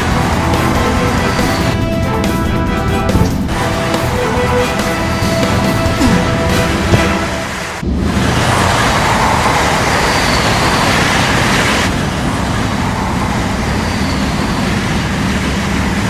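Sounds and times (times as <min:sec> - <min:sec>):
train rumbling and rattling past: 0:00.0 - 0:16.0.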